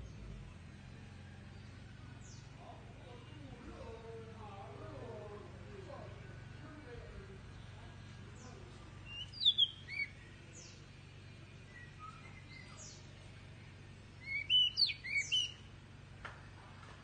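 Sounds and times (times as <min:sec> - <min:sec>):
low steady hum: 0:00.0 - 0:17.0
bird chirping song: 0:01.2 - 0:04.5, 0:06.4 - 0:15.9.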